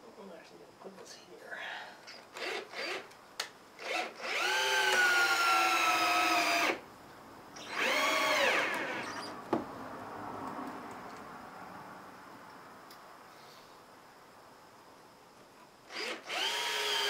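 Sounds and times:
power drill boring into wood: 2.3 - 3.1, 3.8 - 6.8, 7.6 - 9.3, 15.9 - 17.0.

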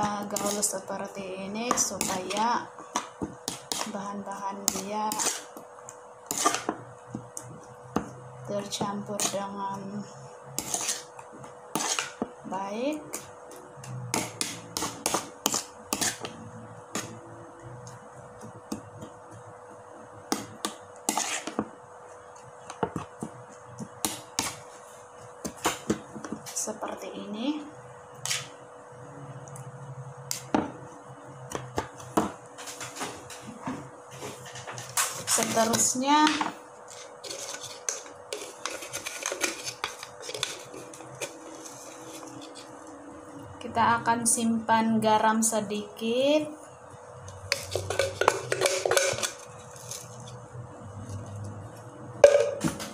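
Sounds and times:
kitchen items clicking and rattling: 47.5 - 50.3.

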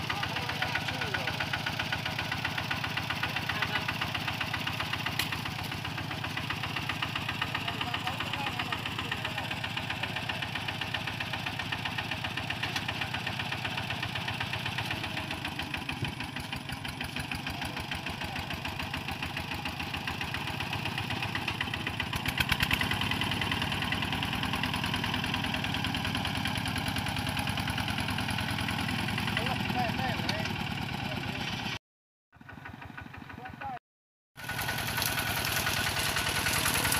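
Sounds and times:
diesel engine pulsing beat: 0.0 - 31.4.

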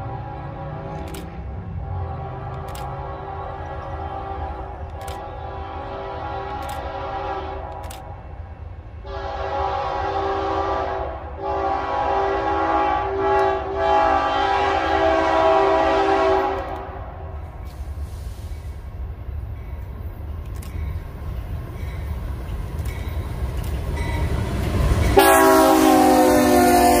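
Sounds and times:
locomotive air horn blasts: 0.0 - 8.0, 9.0 - 17.3, 25.2 - 27.0
train rumble: 0.0 - 27.0.

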